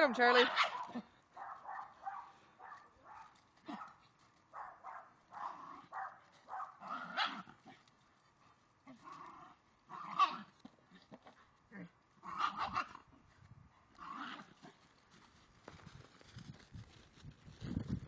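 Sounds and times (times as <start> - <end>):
dogs barking and yipping: 0.2 - 7.8, 12.3 - 13.0.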